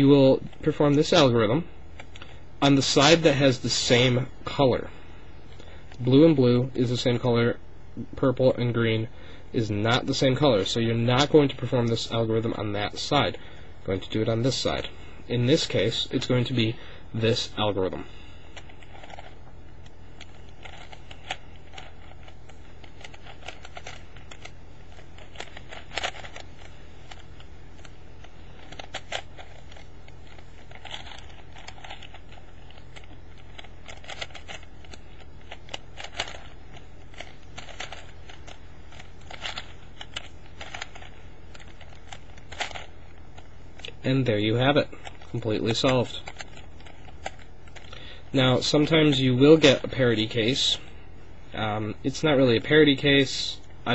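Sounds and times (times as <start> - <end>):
steady low hum: 0.0 - 53.9
puzzle cube clicking: 18.5 - 44.0, 45.0 - 47.9.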